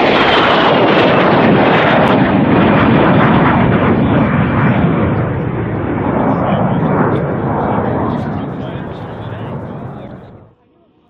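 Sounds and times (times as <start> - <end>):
jet engine flying past: 0.0 - 11.0
falling whine: 4.8 - 11.0.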